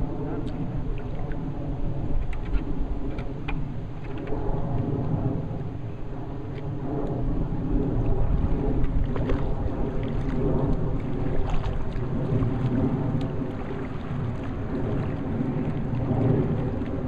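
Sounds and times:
wind buffeting microphone: 0.0 - 17.0
water splashing: 6.5 - 17.0.

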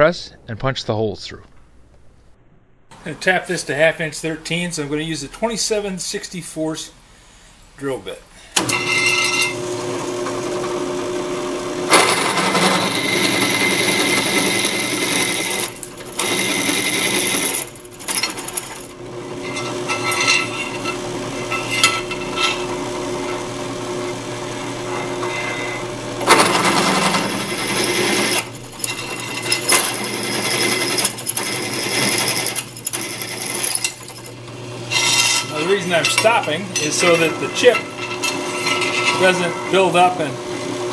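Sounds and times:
drill press boring metal: 8.6 - 40.7.

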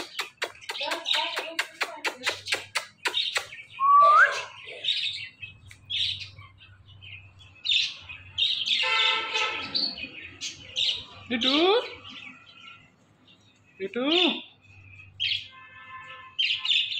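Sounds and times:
harsh raspy parakeet chattering: 0.0 - 3.7
parakeet whistle: 3.8 - 4.6.

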